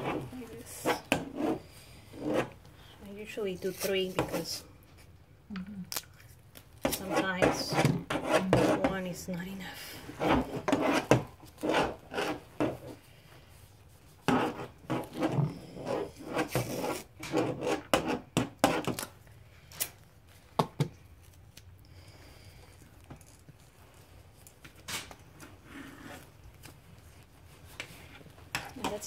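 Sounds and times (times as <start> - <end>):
tape being pulled and torn: 16.4 - 20.4, 21.0 - 21.7, 24.4 - 26.8
tape rustling: 22.6 - 29.0.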